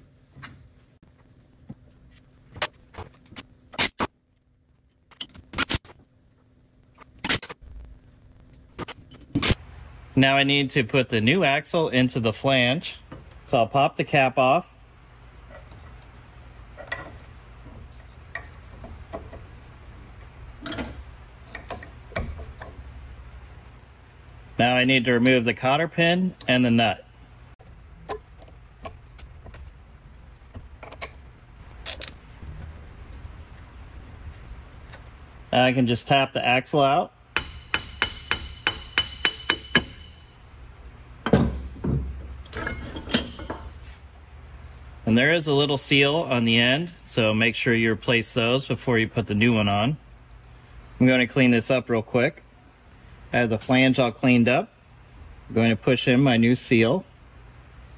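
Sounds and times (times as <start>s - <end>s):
hammer tapping metal: 37.3s - 40.4s
sharp metal knock: 37.4s - 40.3s.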